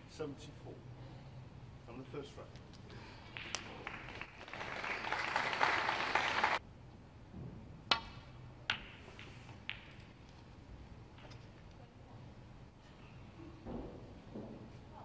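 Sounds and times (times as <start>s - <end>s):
balls clicking together: 2.5s - 4.4s, 7.9s - 10.5s
snooker balls cracking together: 2.5s - 4.7s, 7.9s - 10.4s
audience applauding: 3.3s - 6.6s
cue striking ball: 8.0s - 10.1s.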